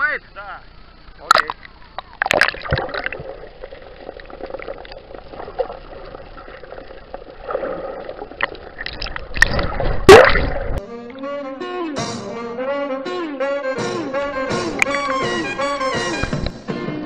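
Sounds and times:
water splashes: 1.2 - 10.8
underwater sloshing and gurgling: 1.3 - 10.8.

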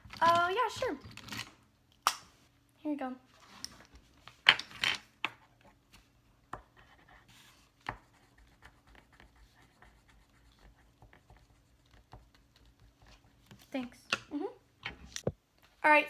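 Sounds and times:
pen scratching on paper: 6.6 - 13.4.

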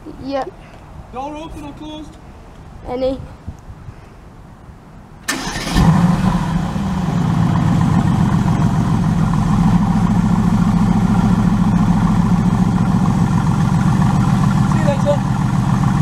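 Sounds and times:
car engine starting and idling: 5.2 - 16.0.

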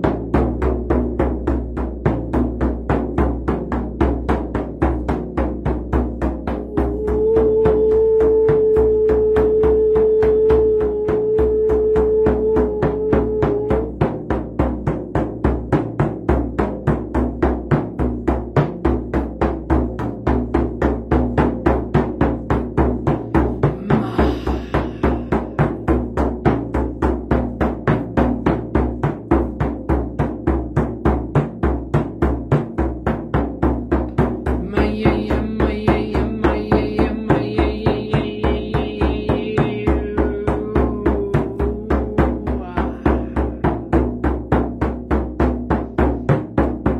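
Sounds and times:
person singing one note: 6.7 - 13.9, 23.8 - 25.5, 34.6 - 43.7
frame drum thumping: 14.2 - 46.9.

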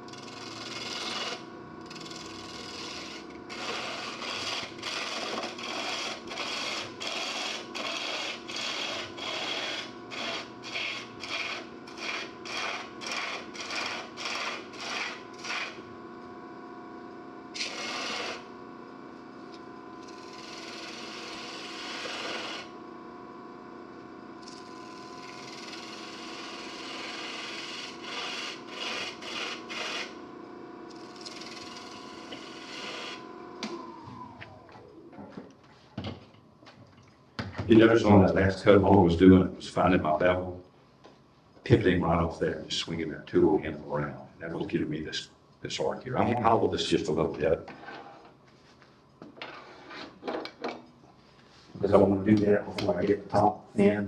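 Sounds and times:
wood lathe humming: 0.0 - 16.8, 17.4 - 35.2
turning tool scraping wood: 0.1 - 15.8.

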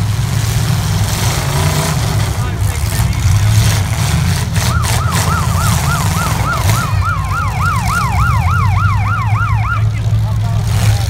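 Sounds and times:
low rumble of car engines: 0.0 - 11.0
siren wailing: 4.4 - 10.1.

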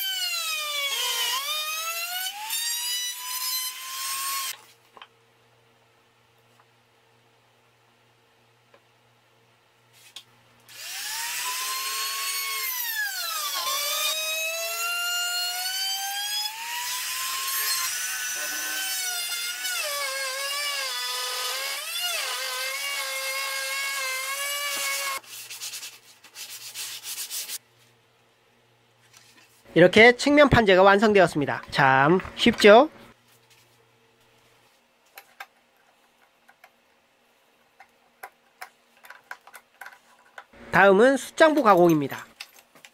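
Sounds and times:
trimmer router motor whine: 10.7 - 12.3
router bit cutting wood: 10.7 - 25.2.

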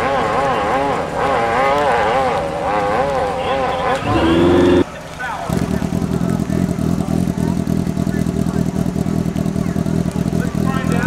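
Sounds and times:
motorcycle engine revving: 0.0 - 11.0.

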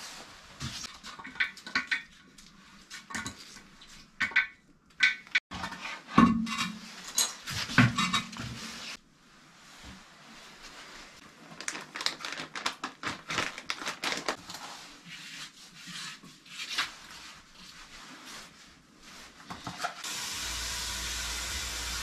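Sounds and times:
plastic bag crinkling: 11.3 - 14.6.

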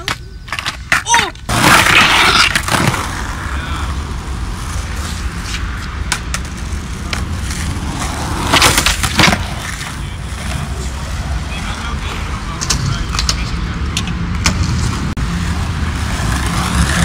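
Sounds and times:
skateboard clacks: 0.0 - 3.4, 5.0 - 10.7, 11.8 - 15.1
skateboard wheels rolling on concrete: 0.0 - 17.0.

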